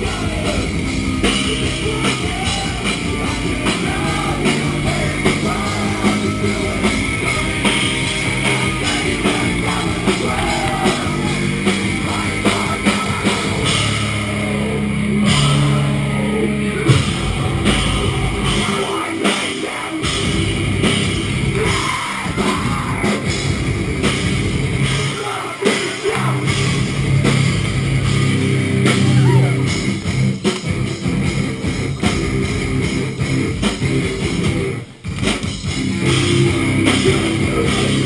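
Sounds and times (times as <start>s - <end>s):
live rock band playing loudly: 0.0s - 38.0s.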